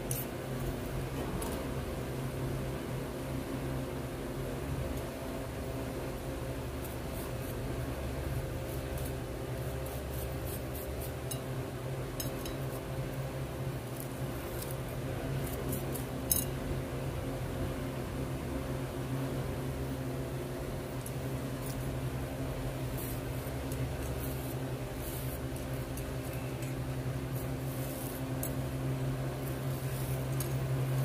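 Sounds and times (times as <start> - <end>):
steady low hum: 0.0 - 31.0
brush scrubbing jewelry: 8.6 - 11.4, 22.9 - 26.5, 27.3 - 28.6, 29.4 - 31.0.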